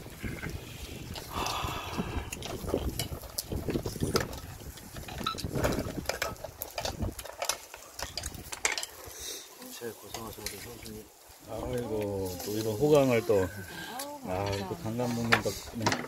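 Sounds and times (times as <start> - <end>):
scissors and shells clattering on pot: 2.2 - 9.2, 10.0 - 11.0.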